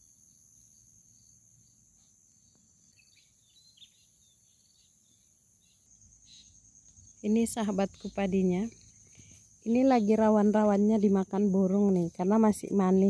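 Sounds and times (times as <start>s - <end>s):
insects droning: 0.0s - 13.0s
bird chirps: 2.4s - 10.4s.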